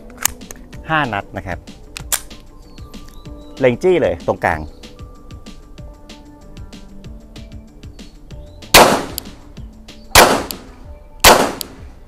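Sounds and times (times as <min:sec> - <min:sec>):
pistol shots: 0:08.7 - 0:09.4, 0:10.1 - 0:11.8.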